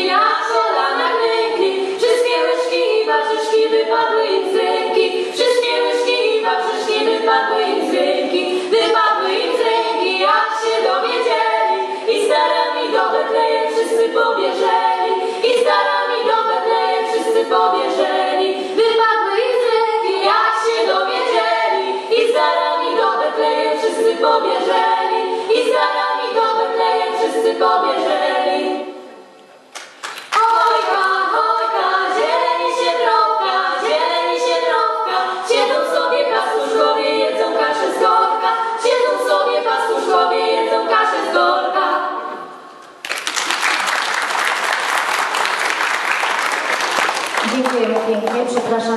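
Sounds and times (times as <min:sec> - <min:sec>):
girls singing a cappella: 0:00.0 - 0:29.4, 0:30.2 - 0:43.0
applause: 0:29.7 - 0:30.8, 0:43.0 - 0:48.7.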